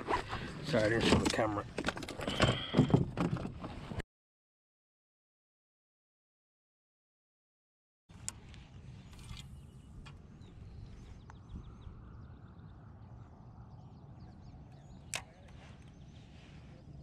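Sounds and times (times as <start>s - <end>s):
faint birds chirping: 8.1s - 17.0s
low outdoor rumble: 8.1s - 17.0s.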